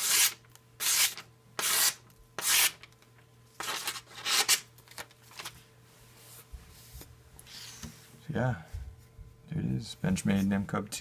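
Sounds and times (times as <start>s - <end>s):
knife slicing paper: 3.6s - 4.7s.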